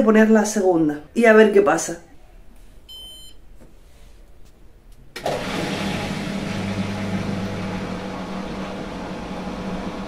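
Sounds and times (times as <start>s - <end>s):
low washing machine hum: 5.2s - 10.0s.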